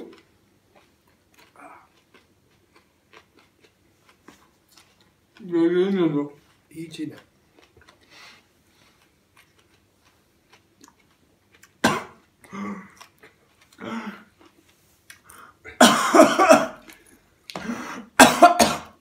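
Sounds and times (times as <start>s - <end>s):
man coughing: 11.8s - 12.7s, 15.8s - 16.8s, 17.7s - 19.0s.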